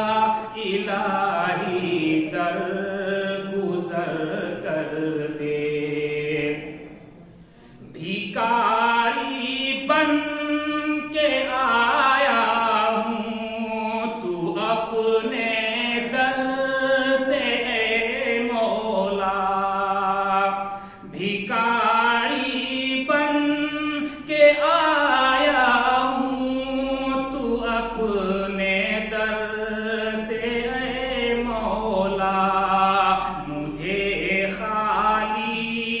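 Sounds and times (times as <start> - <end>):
man chanting unaccompanied: 0.0 - 36.0.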